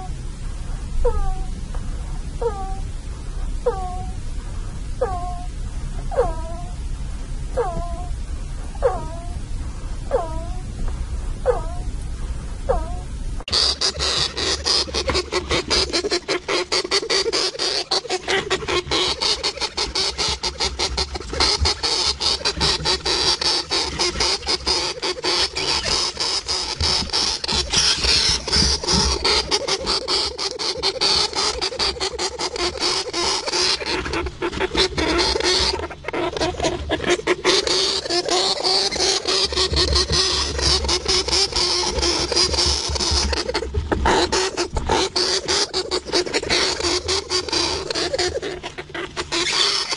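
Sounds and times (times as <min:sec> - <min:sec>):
hamster clicking and scratching: 0:13.5 - 0:49.9.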